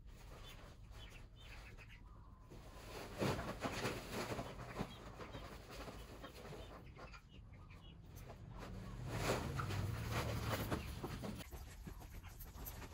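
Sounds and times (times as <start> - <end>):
scuffling and rustling: 2.5 - 7.0, 8.1 - 12.9.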